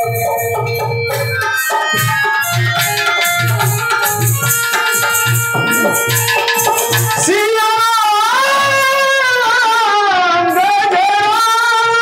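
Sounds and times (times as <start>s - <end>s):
hand drum beats: 0.0s - 7.5s
harmonium drone: 0.0s - 12.0s
man singing: 5.5s - 6.2s, 7.1s - 12.0s.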